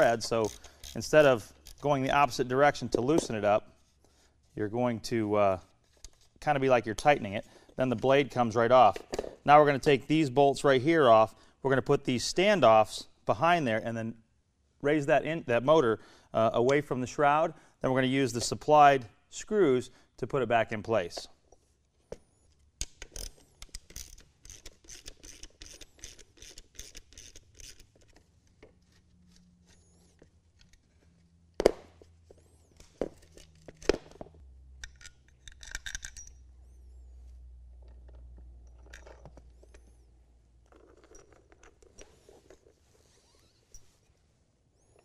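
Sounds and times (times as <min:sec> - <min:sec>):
hand ratchet clicking: 0:00.2 - 0:01.9, 0:22.8 - 0:28.2, 0:34.8 - 0:36.4
metal parts scraping: 0:23.1 - 0:31.2, 0:32.5 - 0:37.2, 0:38.1 - 0:44.1.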